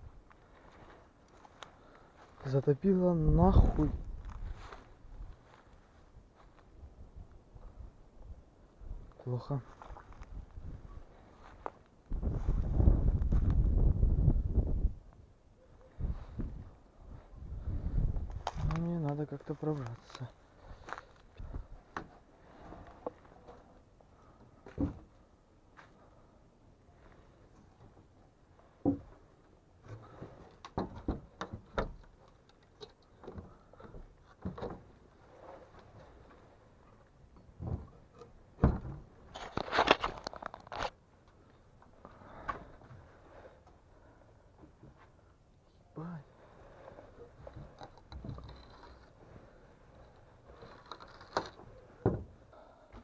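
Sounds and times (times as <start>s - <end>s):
wooden boards knocking and creaking: 20.8s - 25.2s, 28.8s - 36.4s, 37.3s - 40.9s, 46.7s - 49.2s, 50.5s - 53.0s.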